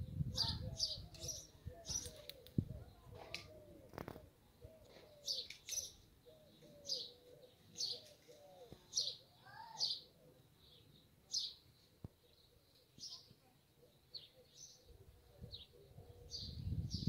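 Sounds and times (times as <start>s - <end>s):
softer lower bird calls: 0.1s - 11.6s.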